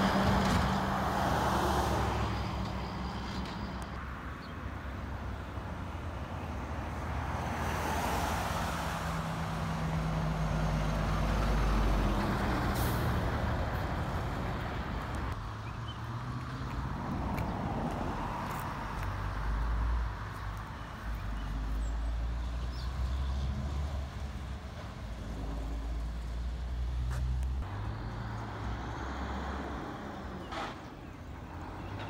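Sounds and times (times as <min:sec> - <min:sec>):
dump truck engine rumble: 0:00.0 - 0:04.0, 0:08.8 - 0:32.0.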